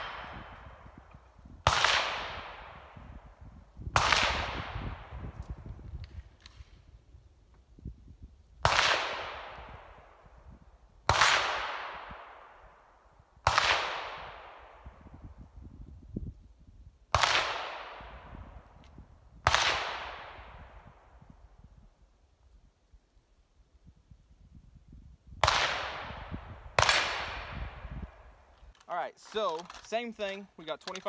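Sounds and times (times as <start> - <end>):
gunshots with long echo: 0.0 - 6.8, 8.6 - 15.2, 17.1 - 18.7, 19.4 - 21.2, 25.4 - 28.5.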